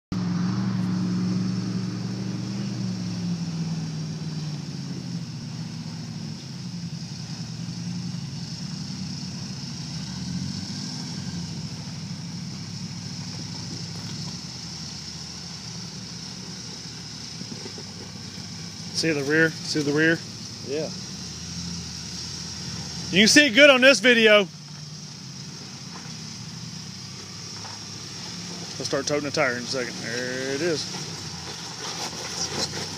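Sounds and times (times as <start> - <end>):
engine running at low revs: 0.1 - 32.9.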